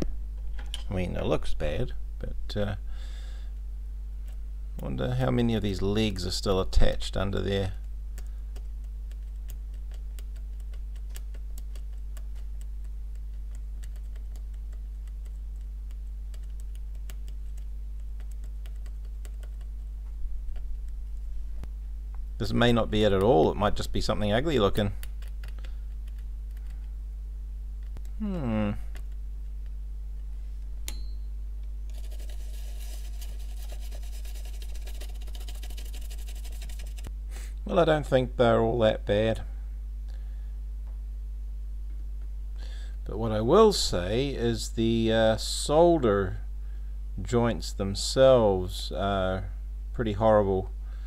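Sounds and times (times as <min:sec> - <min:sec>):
steady low hum: 0:00.0 - 0:51.0
brush scrubbing circuit board: 0:31.9 - 0:37.1.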